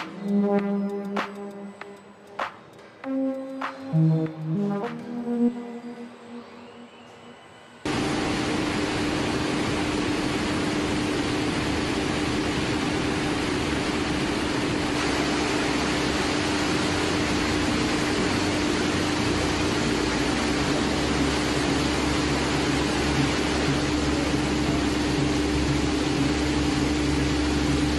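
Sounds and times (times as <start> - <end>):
machinery hum: 0.0 - 2.4, 3.0 - 27.9
deep machinery rumble: 7.9 - 27.9
ventilation rushing hiss: 7.9 - 27.9.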